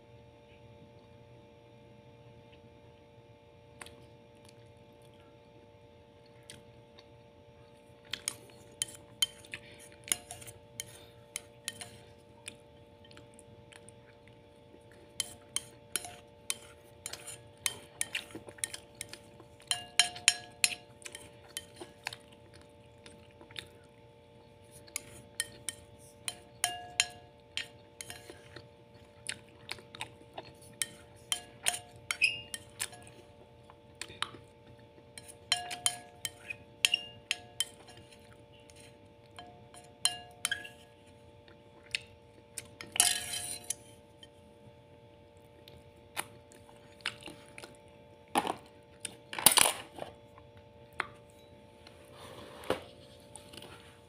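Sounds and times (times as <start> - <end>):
faint steady hum: 0.0 - 54.0
spoon scraping a plate: 8.2 - 12.2, 14.9 - 22.2, 24.6 - 28.7, 30.4 - 33.3, 35.1 - 41.0, 42.8 - 44.3.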